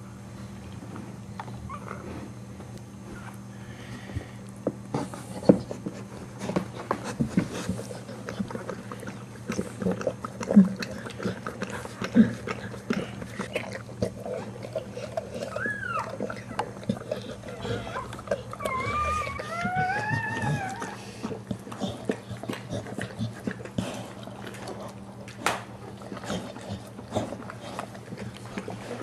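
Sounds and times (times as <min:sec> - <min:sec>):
dog whimper: 0:01.7 - 0:02.0, 0:15.3 - 0:21.3.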